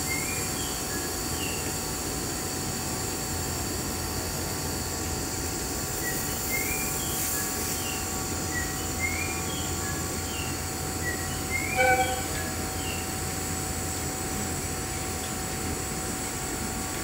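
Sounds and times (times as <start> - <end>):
electric train running: 9.7 - 17.0
steady high tones: 11.5 - 13.1.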